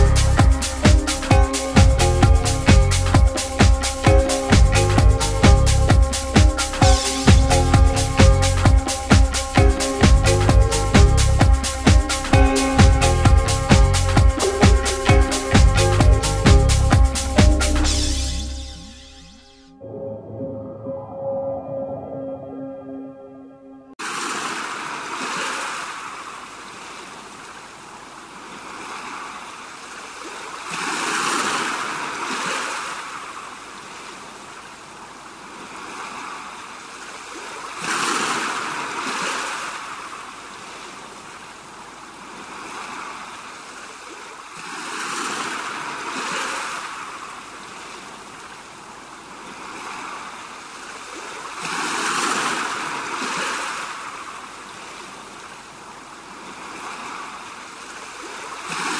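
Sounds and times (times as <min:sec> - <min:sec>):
waves crashing on rocks: 0:24.0 - 0:58.9.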